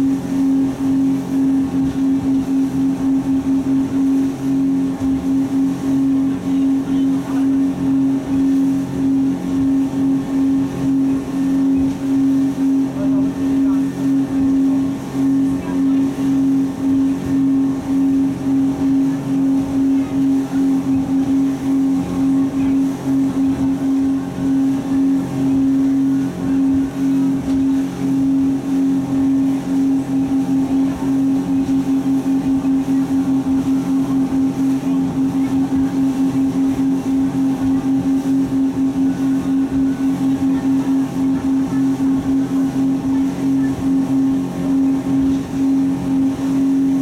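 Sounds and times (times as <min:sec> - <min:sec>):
speedboat engines droning: 0:00.0 - 0:47.0.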